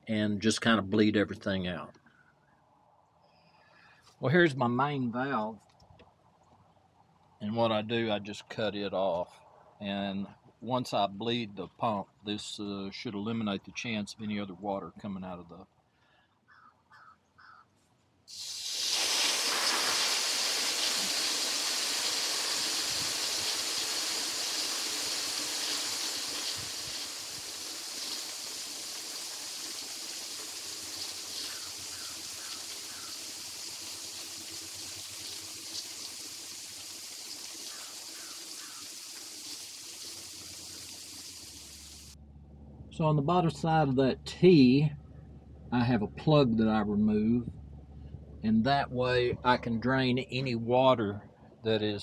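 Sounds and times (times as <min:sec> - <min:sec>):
pressurised water spraying: 0:18.3 - 0:42.2.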